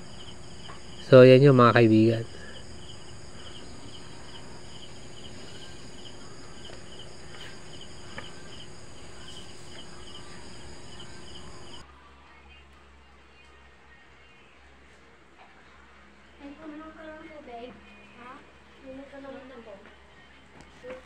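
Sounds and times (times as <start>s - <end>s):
insect chirping in pulses: 0.0s - 11.8s
faint steady hum: 0.0s - 21.0s.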